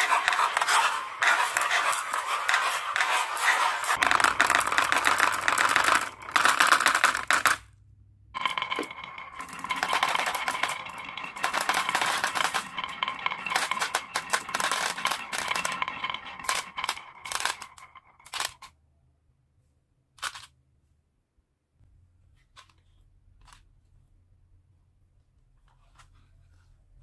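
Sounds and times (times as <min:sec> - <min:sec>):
marbles rattling down wooden run: 0:00.0 - 0:07.6, 0:08.4 - 0:18.7.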